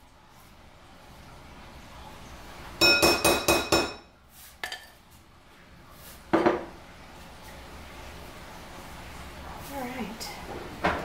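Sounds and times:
kitchenware clinking on bowl rim: 0:02.8 - 0:05.0.

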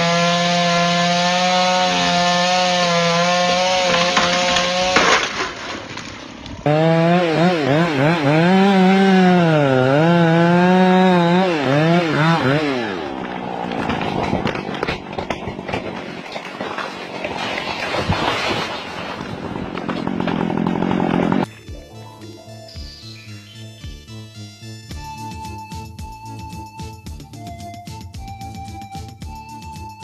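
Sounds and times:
chainsaw cutting into tree trunk: 0:00.0 - 0:21.5
chainsaw revving: 0:00.0 - 0:21.6
wood cracking: 0:00.1 - 0:21.8.

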